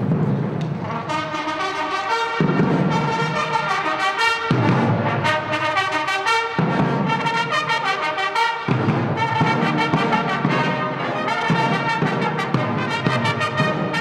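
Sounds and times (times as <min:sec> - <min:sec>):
brass band playing: 0:00.6 - 0:14.0.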